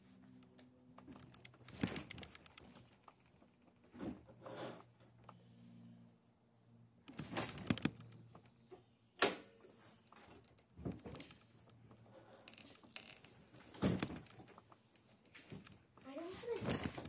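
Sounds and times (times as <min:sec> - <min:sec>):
sharp click: 0:07.1 - 0:08.2
parts rattling and knocking: 0:10.2 - 0:14.8.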